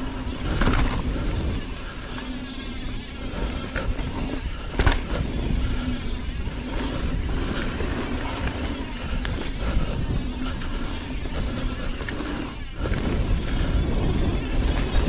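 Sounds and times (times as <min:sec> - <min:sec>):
bike rattling over bumps: 0:00.0 - 0:15.0
bike tyres rolling over dirt: 0:00.0 - 0:15.0
wind rumble on microphone: 0:00.0 - 0:15.0.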